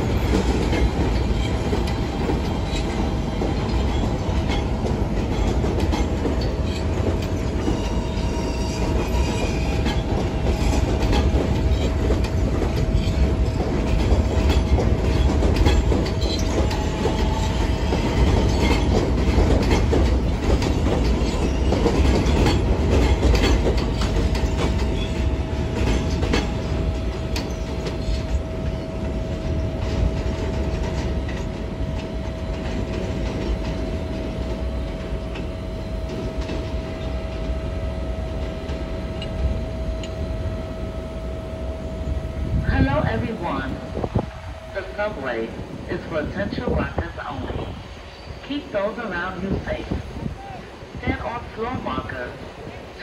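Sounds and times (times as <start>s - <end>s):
train wheels clattering: 0.0s - 40.3s.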